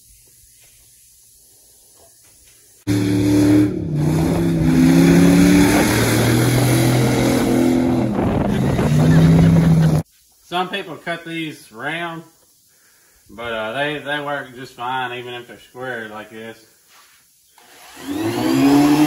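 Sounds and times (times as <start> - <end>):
engine revving hard: 2.9 - 10.0, 17.8 - 19.0
wheels spinning through mud: 2.9 - 10.0.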